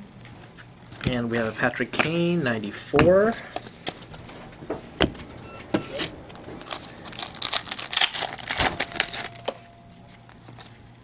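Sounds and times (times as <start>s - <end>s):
cards rustling: 3.2s - 4.3s, 6.0s - 10.9s.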